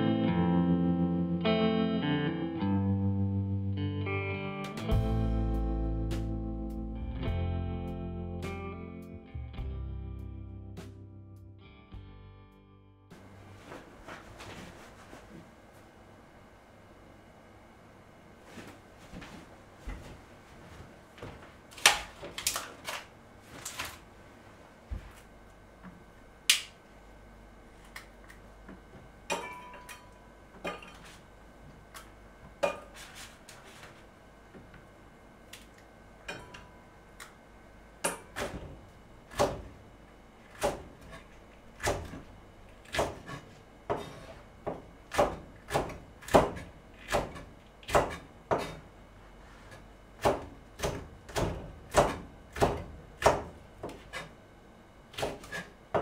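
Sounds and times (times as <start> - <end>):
peppers snapping: 26.5 - 26.8
knife chopping on plastic board: 42.8 - 48.8, 50.2 - 54.3, 55.1 - 56.0.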